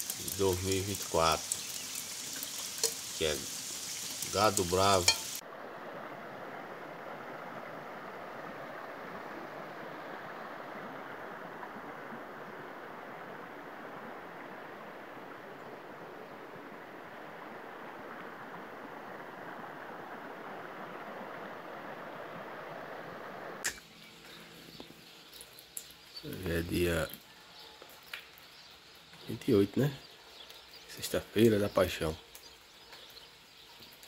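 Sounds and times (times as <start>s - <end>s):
creek water rushing over stones: 0.0s - 26.2s.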